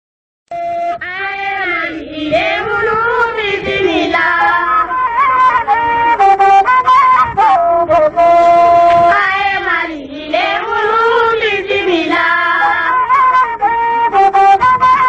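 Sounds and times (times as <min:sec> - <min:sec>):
melody of long held notes: 0:04.1 - 0:09.2, 0:10.6 - 0:15.0.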